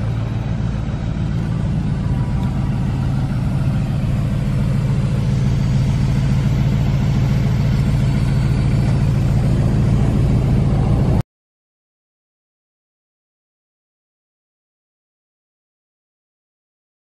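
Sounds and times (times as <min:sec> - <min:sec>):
car engine idling: 0:00.0 - 0:11.2.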